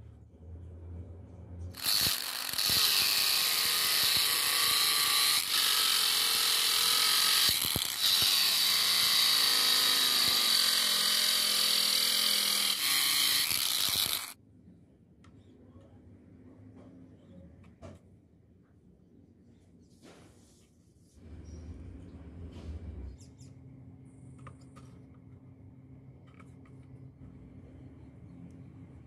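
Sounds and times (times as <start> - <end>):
angle grinder cutting plastic: 1.8 - 14.4.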